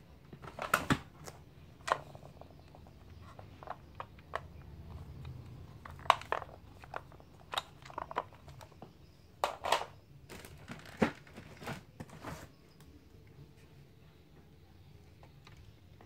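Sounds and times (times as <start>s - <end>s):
crinkling rustles: 9.7s - 12.6s.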